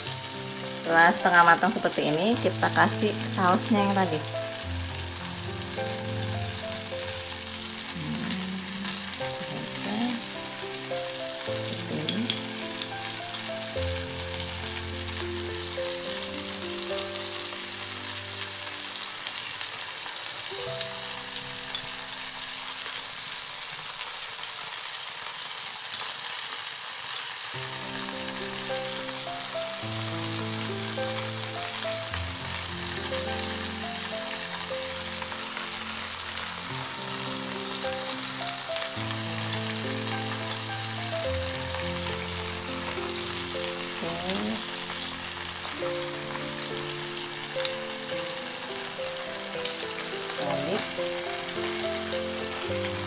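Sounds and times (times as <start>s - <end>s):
background music: 0.0s - 22.9s, 27.6s - 53.0s
prawns sizzling in frying pan: 0.0s - 53.0s.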